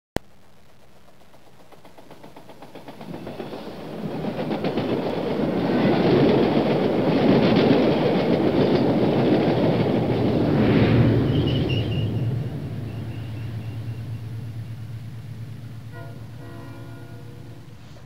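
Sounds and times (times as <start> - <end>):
train wheel clicks on rails: 0.9 - 10.4.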